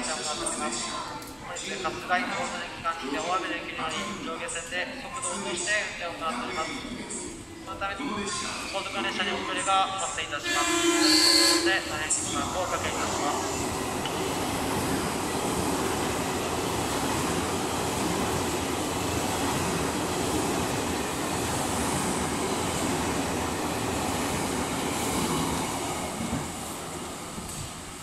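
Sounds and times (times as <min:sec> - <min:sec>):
train passing at speed: 0:10.4 - 0:28.0.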